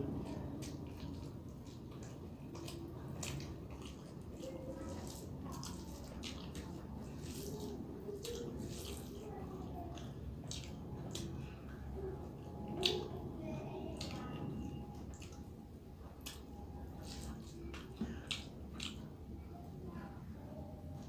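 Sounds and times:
low background noise: 0.0 - 21.0
wet chewing and lip smacking: 0.3 - 19.4.

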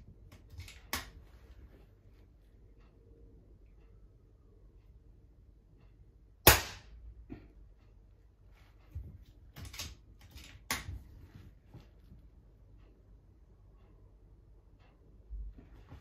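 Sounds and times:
rifle action clicks and rattles: 0.3 - 1.2, 9.5 - 10.9.

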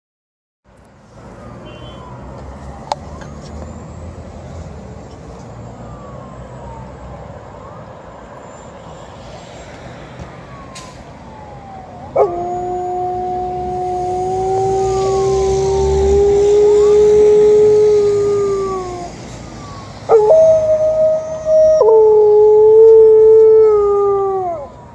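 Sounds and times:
low traffic rumble: 0.7 - 24.9
distant ambulance siren: 0.9 - 24.9
dog howling: 12.1 - 19.1, 20.1 - 24.7.

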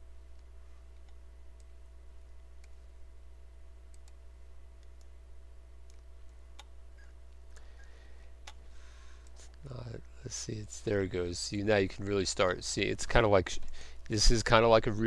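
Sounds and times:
low electrical hum: 0.0 - 15.0
computer mouse clicks: 3.9 - 4.2.

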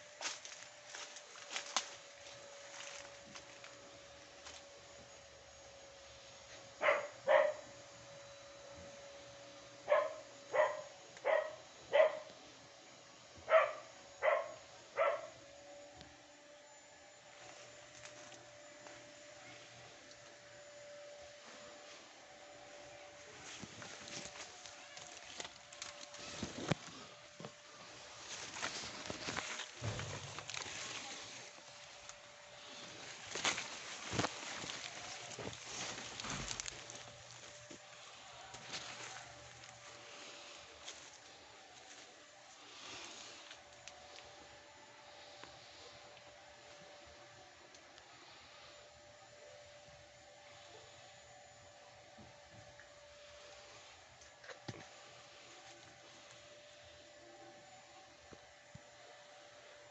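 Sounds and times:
dry leaves crackling underfoot: 0.0 - 4.8, 17.2 - 45.8
faint steady hum: 0.0 - 59.9
dog barking: 6.8 - 7.7, 9.9 - 12.3, 13.5 - 15.4.

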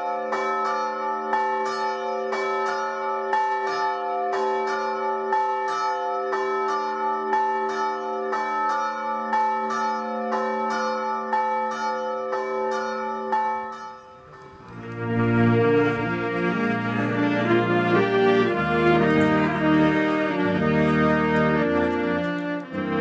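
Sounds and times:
church bells ringing: 0.0 - 23.0.

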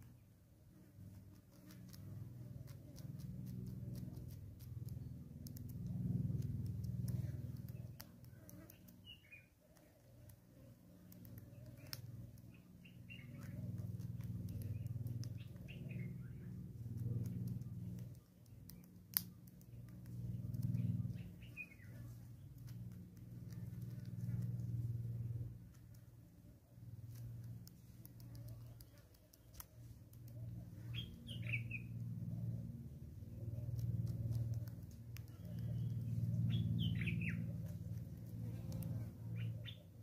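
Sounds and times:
low hum: 0.0 - 40.0
small birds chirping: 1.1 - 40.0
bird bill pecking on wood: 1.3 - 26.2, 27.0 - 31.8.

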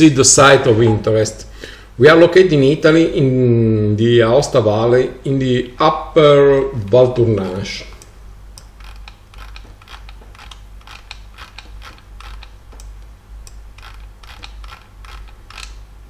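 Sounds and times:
steady low hum: 0.0 - 16.0
computer mouse clicking: 7.9 - 15.8.

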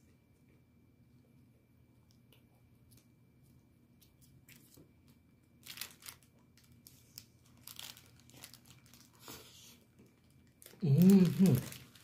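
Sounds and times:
food wrapping crinkling: 4.0 - 12.0.

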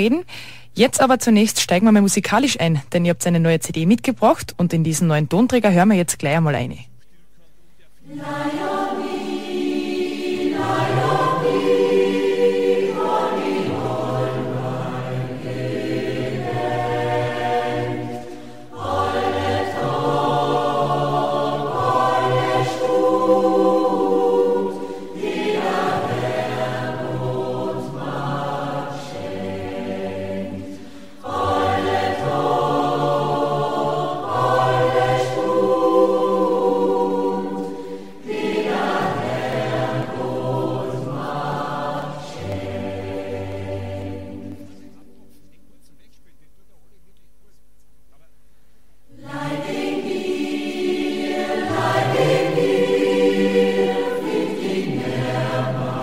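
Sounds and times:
mixed choir singing: 8.0 - 45.2, 49.1 - 56.0.

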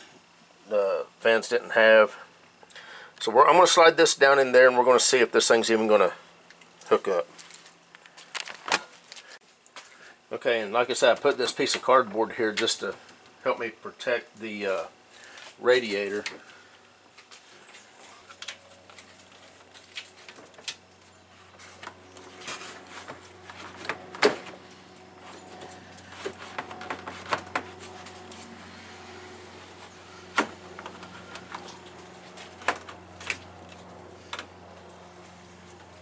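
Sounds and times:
plastic knocking and scraping: 26.1 - 27.8.

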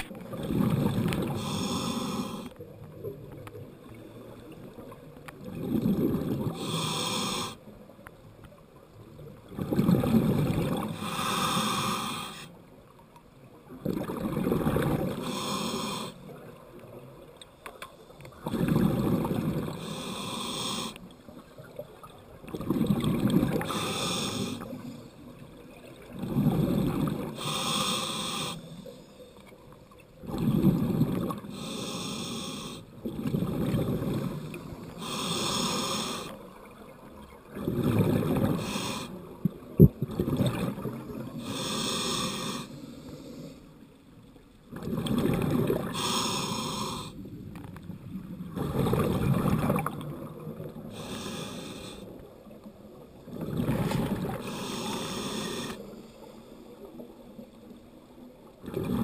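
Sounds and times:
exhaled bubbles rumbling: 0.0 - 1.5, 4.4 - 6.7, 9.1 - 11.0, 13.7 - 15.2, 18.3 - 19.9, 21.4 - 23.8, 24.7 - 27.4, 30.2 - 31.5, 33.0 - 34.8, 36.7 - 41.4, 44.7 - 46.0, 47.2 - 51.1, 53.0 - 54.5, 58.5 - 59.0
regulator inhale hiss: 1.3 - 2.6, 6.5 - 7.7, 10.9 - 12.6, 15.1 - 16.3, 19.7 - 21.1, 23.6 - 25.2, 26.7 - 29.6, 31.4 - 32.9, 34.2 - 36.4, 38.5 - 39.3, 41.4 - 43.8, 45.9 - 47.2, 50.9 - 52.3, 54.3 - 57.0.

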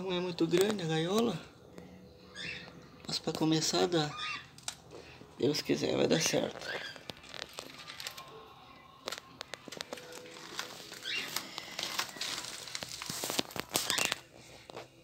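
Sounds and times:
budgerigars chattering and chirping: 2.3 - 2.8, 4.0 - 4.5
sharp clicks and crackles: 4.5 - 4.9, 6.5 - 8.3, 9.0 - 14.9.

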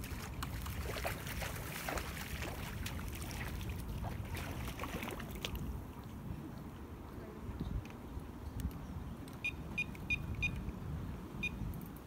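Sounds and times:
water splashing and sloshing: 0.0 - 6.9
wind rumble on microphone: 0.0 - 12.0.

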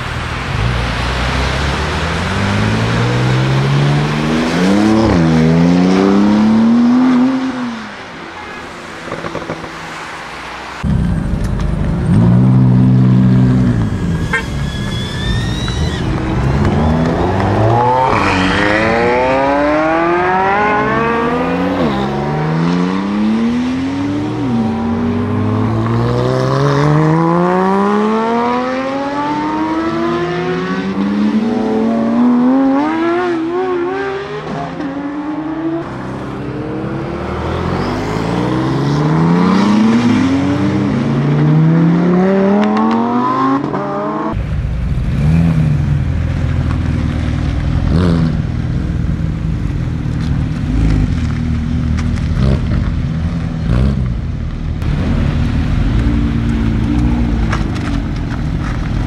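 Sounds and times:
sports cars accelerating hard: 15.6 - 44.4.

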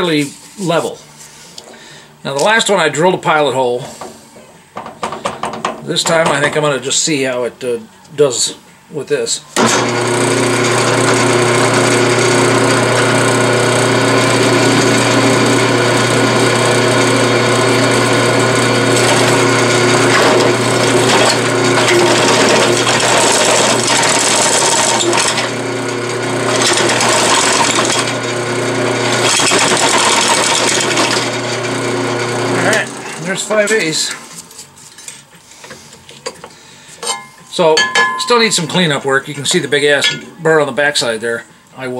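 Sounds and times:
drill press motor hum: 9.6 - 33.9
drill grinding through steel: 9.6 - 34.1.

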